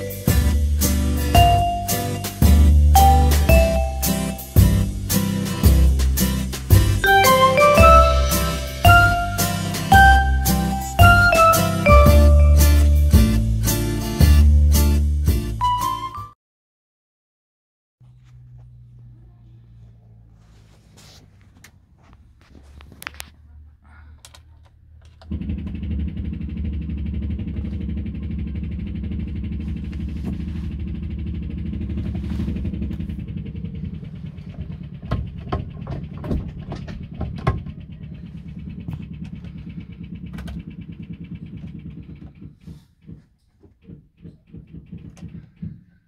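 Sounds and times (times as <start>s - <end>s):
car engine starting and running: 18.0s - 42.6s
engine knocks: 25.0s - 46.0s.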